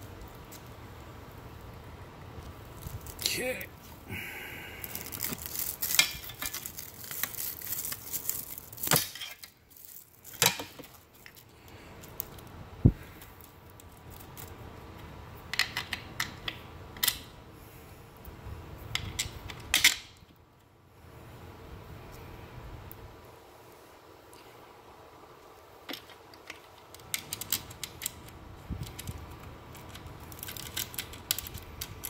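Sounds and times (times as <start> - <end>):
strap rustling: 2.4 - 4.1, 4.7 - 14.6.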